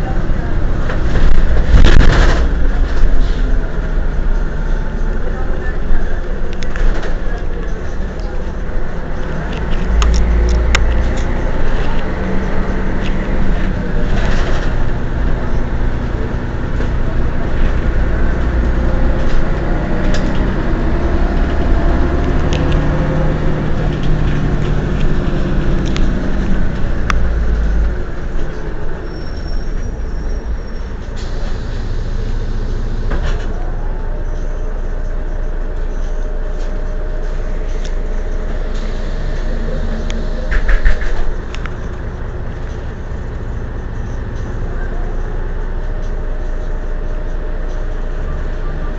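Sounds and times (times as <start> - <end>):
bus diesel engine running: 0.0 - 48.9
sharp clicks and rattles: 6.4 - 15.9, 22.2 - 28.8.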